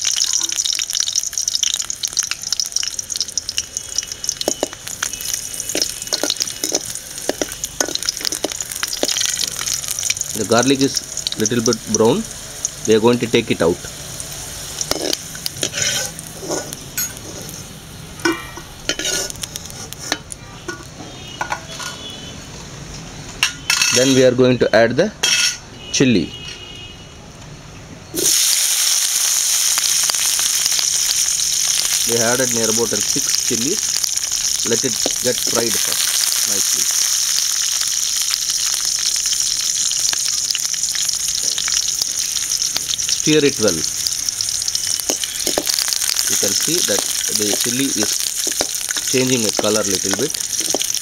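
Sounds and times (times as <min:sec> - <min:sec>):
oil sizzling in a pan: 0:00.0 - 0:22.0, 0:28.2 - 0:51.0
metal skimmer scraping a pan: 0:14.9 - 0:20.9.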